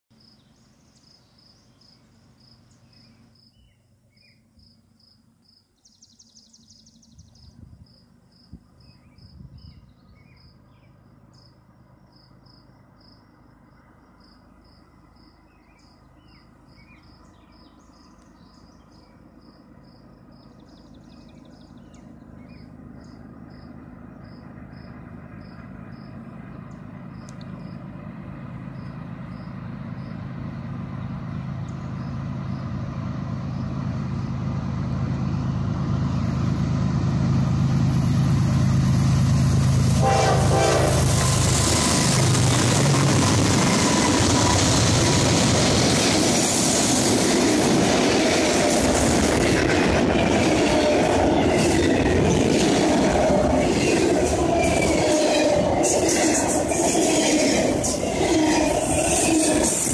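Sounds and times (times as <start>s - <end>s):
freight train rumble: 0.1s - 59.9s
insect chirping: 0.2s - 27.9s, 28.6s - 33.8s.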